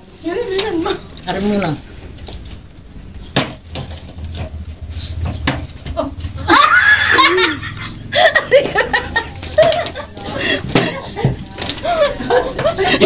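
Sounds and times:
loud laughter: 0:06.4 - 0:11.2, 0:11.8 - 0:13.0.

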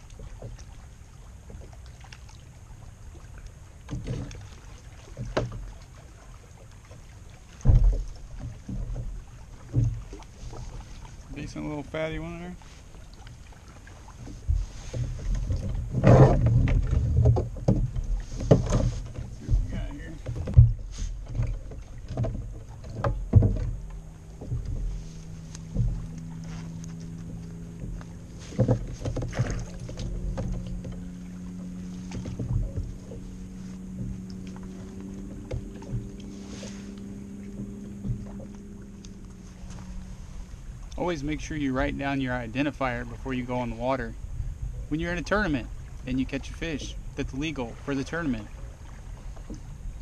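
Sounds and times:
steady low hum: 0:00.0 - 0:50.0
rustling: 0:23.4 - 0:30.8, 0:31.7 - 0:40.9.

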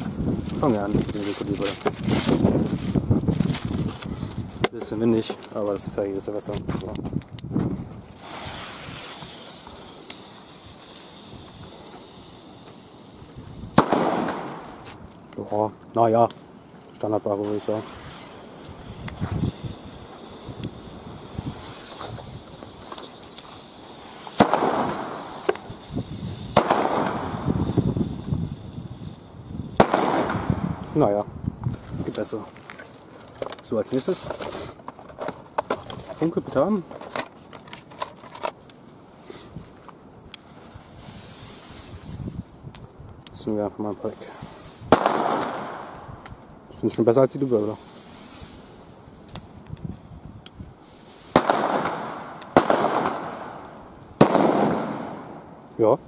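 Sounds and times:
firecracker bangs: 0:13.7 - 0:14.8, 0:24.2 - 0:28.1, 0:29.7 - 0:30.8, 0:44.9 - 0:46.0, 0:51.3 - 0:55.5.

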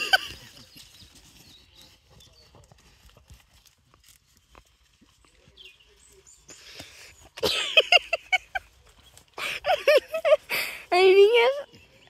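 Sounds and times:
sheep chewing: 0:00.0 - 0:07.4.

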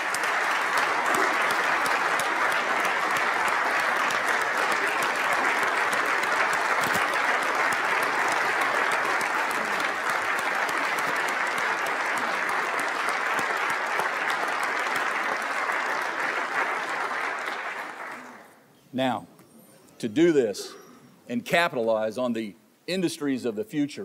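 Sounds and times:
crowd applauding: 0:00.0 - 0:18.6.

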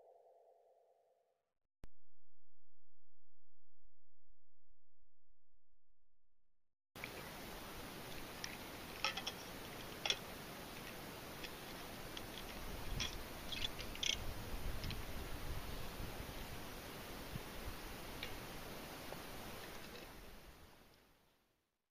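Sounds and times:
faint outdoor hiss: 0:07.0 - 0:21.6.

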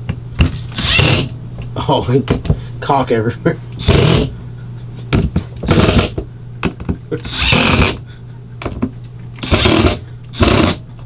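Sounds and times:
cordless drill driving screws: 0:00.7 - 0:01.3, 0:07.3 - 0:08.0, 0:09.4 - 0:10.8.

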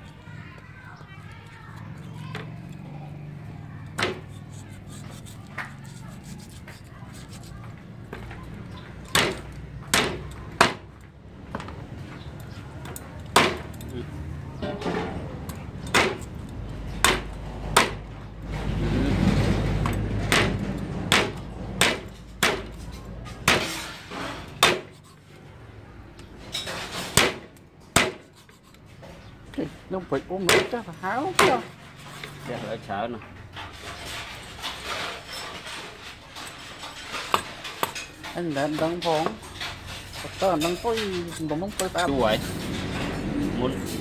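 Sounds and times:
cleaver chopping meat on wood: 0:04.0 - 0:04.4, 0:09.0 - 0:11.0, 0:13.3 - 0:13.7, 0:15.9 - 0:16.3, 0:17.0 - 0:18.1, 0:20.2 - 0:22.8, 0:23.4 - 0:23.7, 0:24.6 - 0:25.1, 0:27.1 - 0:28.4, 0:30.4 - 0:31.7.

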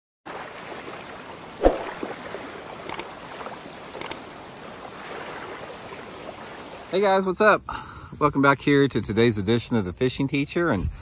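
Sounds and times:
rushing water-like noise: 0:00.3 - 0:07.3.

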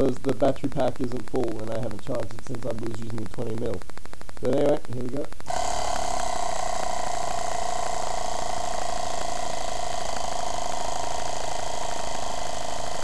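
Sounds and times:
air compressor whining: 0:05.5 - 0:13.0.

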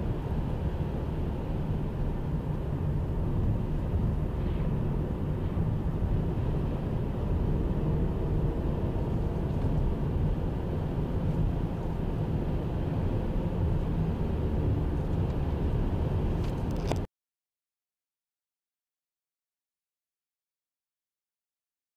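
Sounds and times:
car driving on highway: 0:00.0 - 0:17.1.

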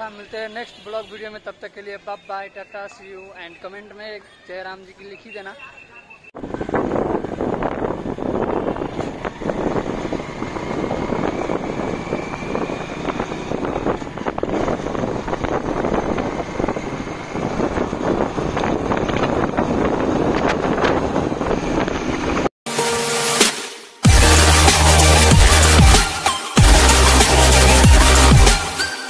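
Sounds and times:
motorcycle engine cruising: 0:06.4 - 0:22.5
wind buffeting microphone: 0:06.4 - 0:22.5.

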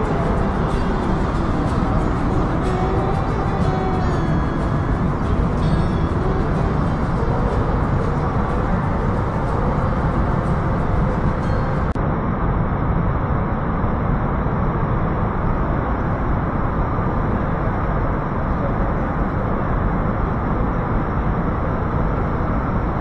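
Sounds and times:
turbine-generator humming: 0:00.0 - 0:12.2.

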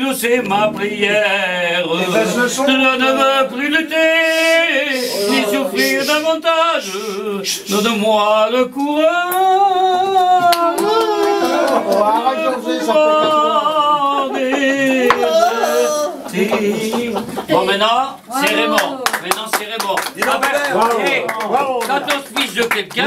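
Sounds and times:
person singing unaccompanied: 0:00.0 - 0:17.1.

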